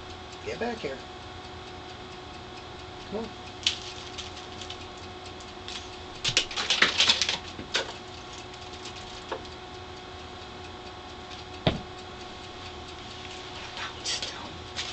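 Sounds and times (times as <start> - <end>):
faint steady hum: 0.0 - 14.9
thump: 11.6 - 11.9.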